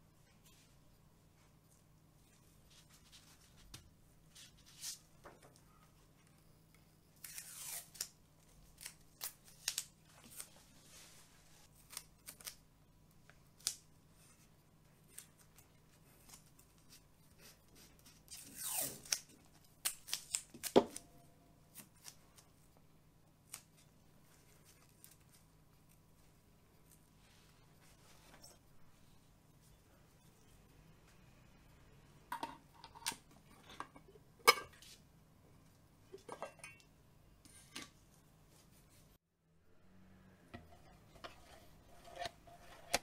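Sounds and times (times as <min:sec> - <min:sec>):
masking tape ripping off roll: 0:07.2 - 0:08.2, 0:18.3 - 0:21.0.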